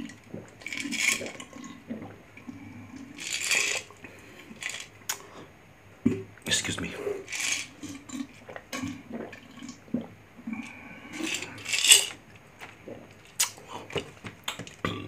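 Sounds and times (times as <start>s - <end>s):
gulping drink: 0.0s - 5.4s, 6.0s - 11.8s, 12.8s - 15.0s
glass jar clinking down: 11.2s - 12.2s.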